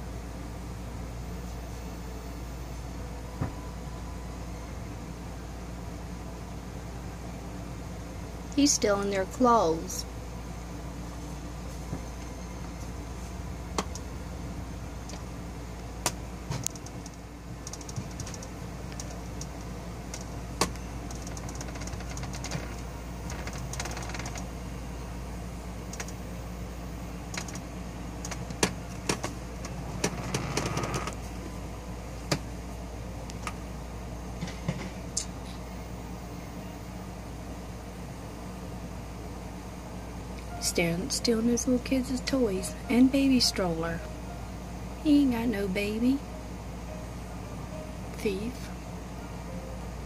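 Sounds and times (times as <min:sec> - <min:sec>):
steady low hum: 0:00.0 - 0:50.0
sharp clicks and knocks: 0:16.0 - 0:19.5, 0:28.2 - 0:31.2.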